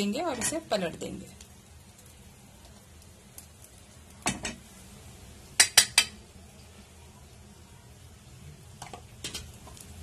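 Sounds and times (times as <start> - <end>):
metal spoon knocking on pan: 5.6 - 6.2.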